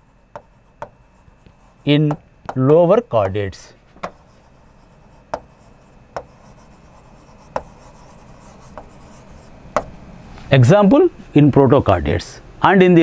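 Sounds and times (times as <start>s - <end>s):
chalk scratching on blackboard: 0.0s - 9.9s
chalk tapping on board: 0.3s - 10.0s.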